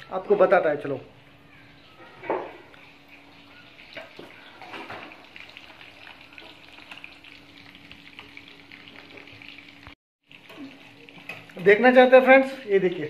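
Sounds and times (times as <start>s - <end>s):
chicken frying crackle: 2.7s - 13.0s.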